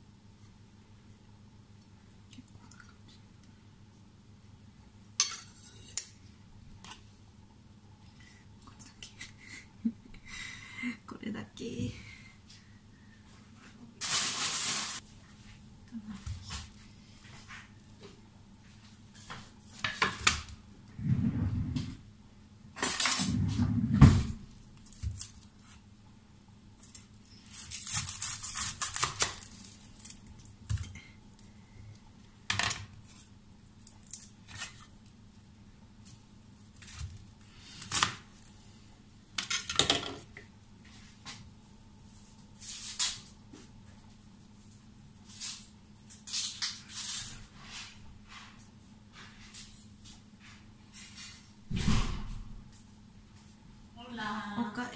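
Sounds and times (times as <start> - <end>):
onion rustling and crackling: 24.4 - 25.9, 26.8 - 31.5, 33.0 - 38.6.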